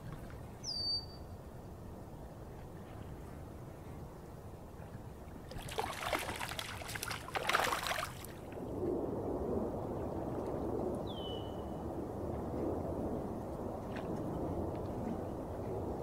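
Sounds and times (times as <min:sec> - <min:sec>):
fish splashing at water surface: 0:05.5 - 0:08.6.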